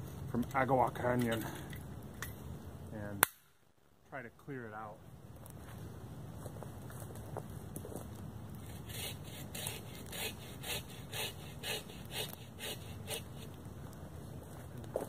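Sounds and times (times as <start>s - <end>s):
bow saw cutting wood: 8.6s - 13.6s.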